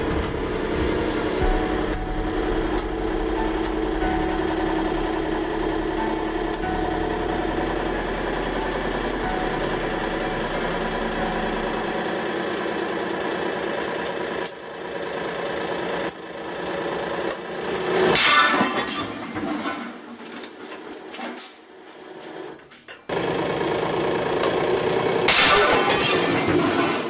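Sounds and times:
pump motor humming: 0.0s - 17.9s.

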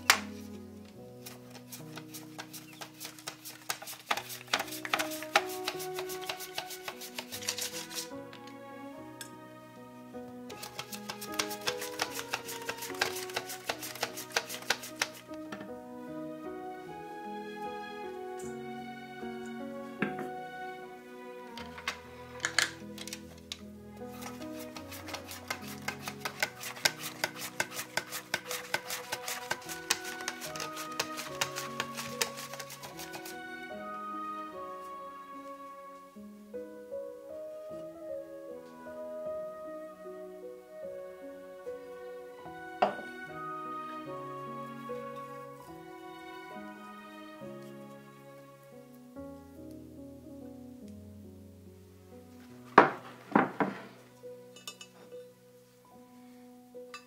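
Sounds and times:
background music: 0.0s - 57.0s
potato rasping on mandoline slicer: 24.2s - 33.2s.

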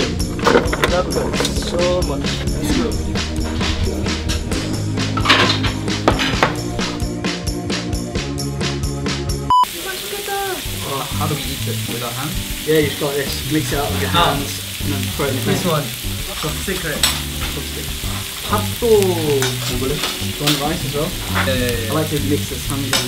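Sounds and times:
people talking: 0.8s - 3.1s, 9.6s - 23.0s
pork sizzling on a grill pan: 9.6s - 23.0s.

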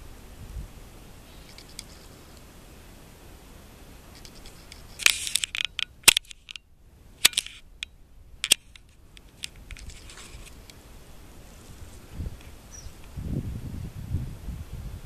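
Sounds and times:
twigs scraping camera: 1.3s - 2.4s, 4.1s - 6.6s, 7.2s - 10.8s.

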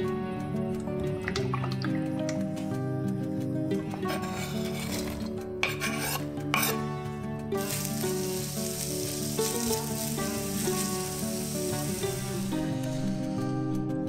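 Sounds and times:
spatula stirring in pan: 3.9s - 6.8s
onions sizzling in a frying pan: 7.5s - 13.8s.

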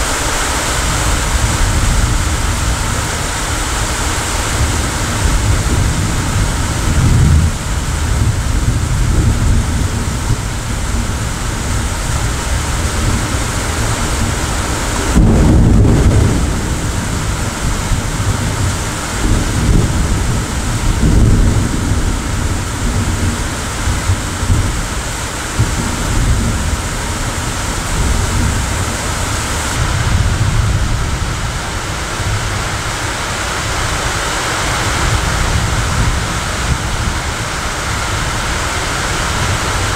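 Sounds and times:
steady rain: 0.0s - 39.9s
thunder rumbling: 0.0s - 39.9s.

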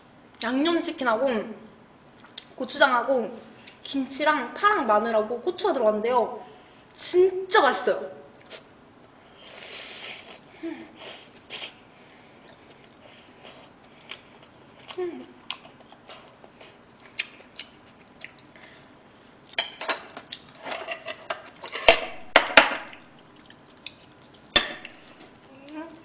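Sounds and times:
soft chewing: 8.3s - 20.6s, 22.9s - 26.0s.

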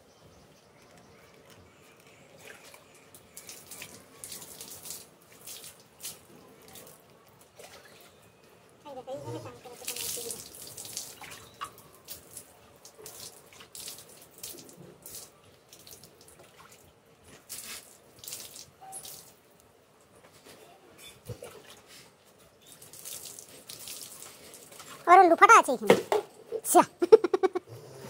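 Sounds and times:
water splashing on concrete: 3.4s - 8.1s, 9.6s - 19.4s, 22.7s - 25.0s.

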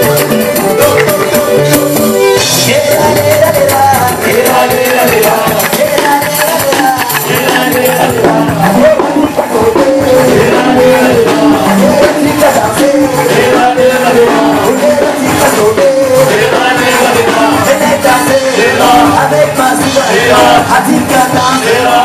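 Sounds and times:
sharp clicking percussion: 0.0s - 22.0s
women singing in group: 16.2s - 22.0s.

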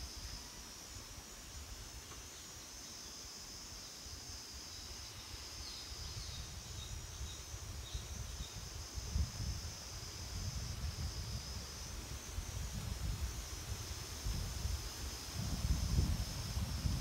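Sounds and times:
high-pitched insect chorus: 0.0s - 17.0s
wind rumbling on microphone: 5.9s - 17.0s.

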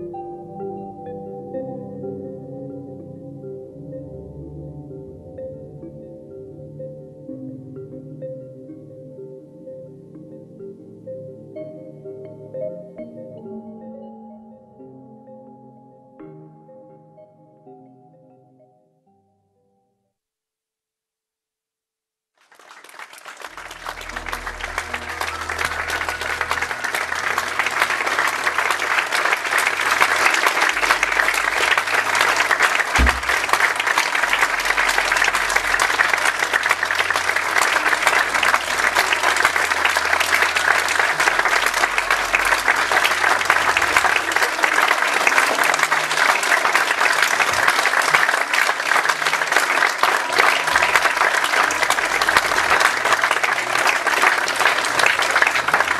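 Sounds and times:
audience applauding: 22.4s - 55.9s.

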